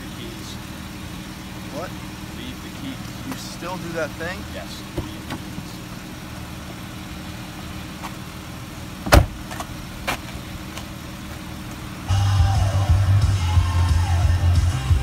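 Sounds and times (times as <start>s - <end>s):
car engine idling: 0.0s - 15.0s
car door shutting: 4.9s - 5.7s, 9.0s - 10.4s.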